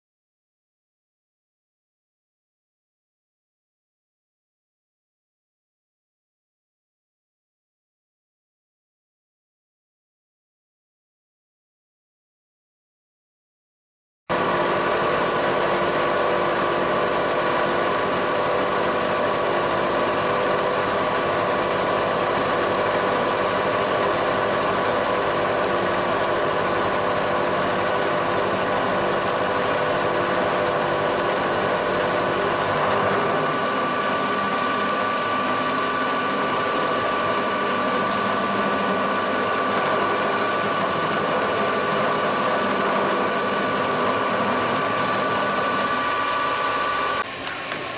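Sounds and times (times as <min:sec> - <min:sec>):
milling machine high-pitched whine: 0:14.3 - 0:47.9.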